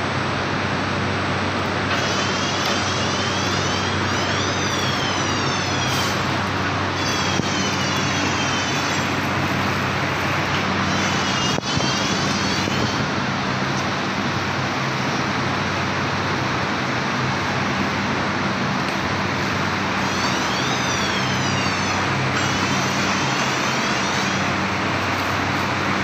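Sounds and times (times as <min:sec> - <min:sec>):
paper straw machinery running: 0:00.0 - 0:26.0
machine whines rising and falling: 0:01.8 - 0:13.7, 0:19.2 - 0:26.0.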